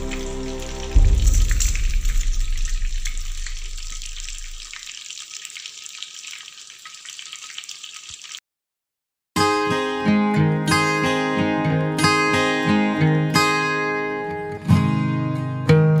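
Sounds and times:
oil sizzling and popping: 0.0 - 8.4
acoustic guitar music: 9.4 - 16.0.

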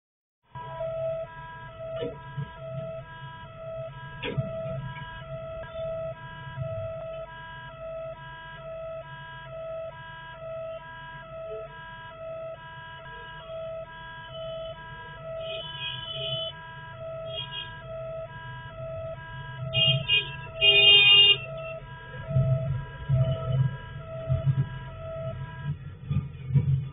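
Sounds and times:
idling traffic rumble: 0.5 - 26.9
level crossing electronic alarm: 0.6 - 25.8
vehicle horn blasts: 14.3 - 16.6, 17.2 - 17.9, 19.6 - 21.8.

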